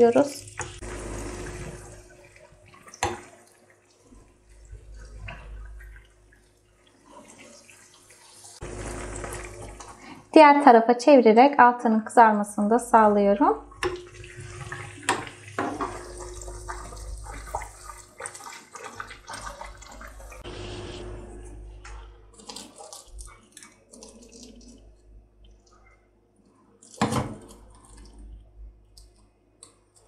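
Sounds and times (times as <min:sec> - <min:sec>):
pastry deep-frying in hot oil: 0:00.0 - 0:10.6, 0:13.2 - 0:21.2, 0:21.9 - 0:25.9.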